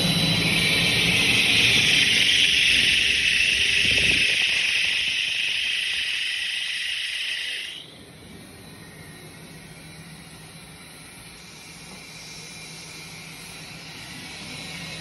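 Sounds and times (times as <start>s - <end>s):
mixer low rumble: 0.0s - 6.2s
mixer high hiss: 0.0s - 15.0s.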